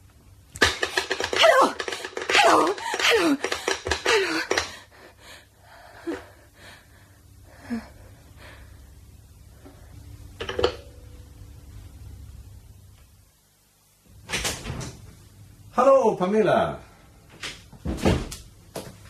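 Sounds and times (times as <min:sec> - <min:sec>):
low steady hum: 0:00.0 - 0:19.0
person gasping and crying out: 0:01.3 - 0:05.2.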